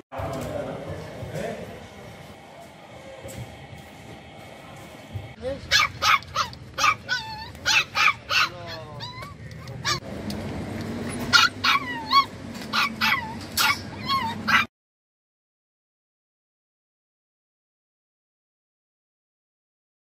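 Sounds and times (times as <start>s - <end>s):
dogs barking and yelping: 5.7s - 10.0s, 11.1s - 14.7s.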